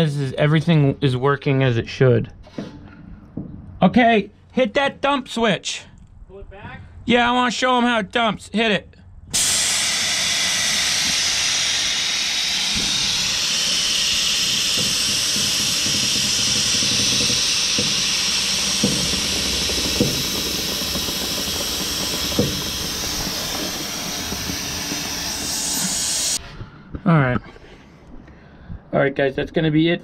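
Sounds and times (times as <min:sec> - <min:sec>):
air suspension hissing: 0:09.3 - 0:26.4.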